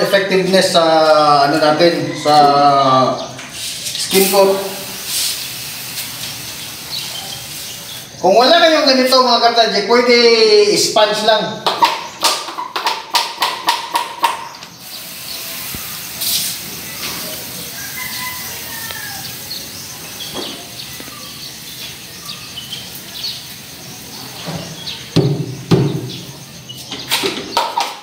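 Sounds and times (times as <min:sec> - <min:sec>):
birds chirping faintly: 0:00.0 - 0:28.0
hiss of water mist spraying: 0:03.5 - 0:08.2, 0:14.7 - 0:24.2.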